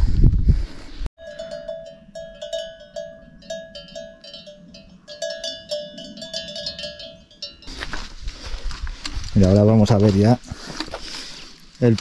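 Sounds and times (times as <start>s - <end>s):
livestock bell clanking: 1.2s - 7.7s.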